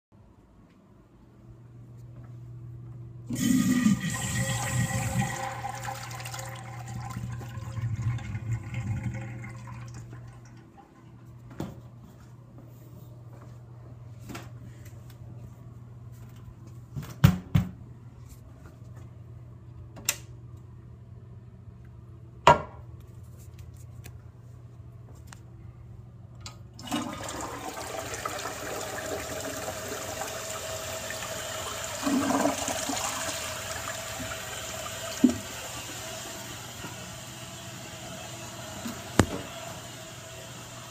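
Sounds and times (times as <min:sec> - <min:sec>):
steady low hum: 0:00.2 - 0:26.8
toilet flushing with whining valve: 0:03.3 - 0:11.0, 0:26.8 - 0:40.9.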